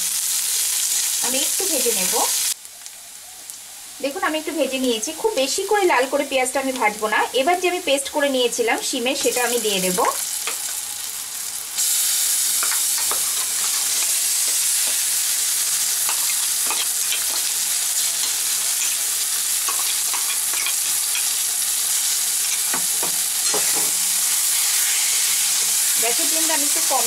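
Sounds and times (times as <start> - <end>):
hot oil sizzling: 0.0 - 27.0
spoon clicking and scraping: 12.6 - 15.1, 16.0 - 21.4, 22.4 - 23.9.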